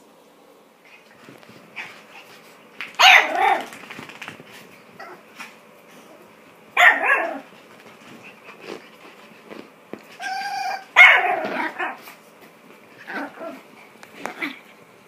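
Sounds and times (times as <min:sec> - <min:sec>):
small dog barking: 0:03.0 - 0:03.7, 0:06.8 - 0:07.5, 0:10.6 - 0:12.0.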